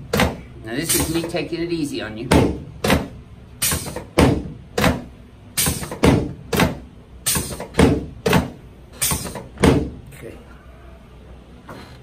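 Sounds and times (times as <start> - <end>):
thumps on a padded table: 5.7 - 6.8, 7.4 - 8.6, 9.2 - 10.0.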